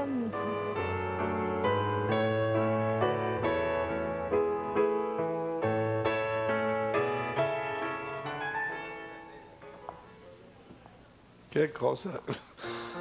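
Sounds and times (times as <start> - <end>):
slow piano chords: 0.0 - 10.3.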